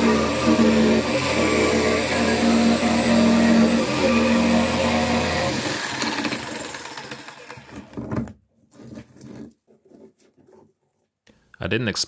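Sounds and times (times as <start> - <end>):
jigsaw motor running down: 0.0 - 8.0.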